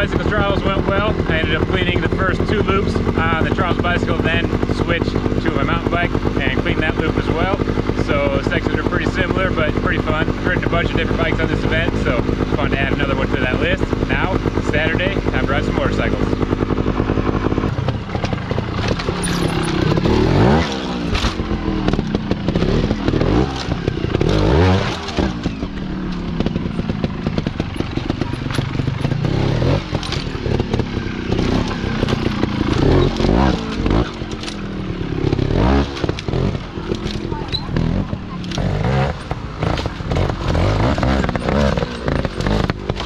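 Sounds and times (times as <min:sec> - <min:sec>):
motorcycle engine revving: 0:00.0 - 0:43.0
motorcycle knocking on rock: 0:16.3 - 0:43.0.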